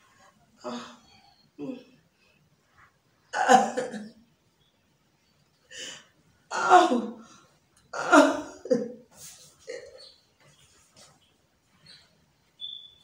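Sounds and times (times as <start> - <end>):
person coughing hard: 3.4 - 4.1, 8.0 - 8.9.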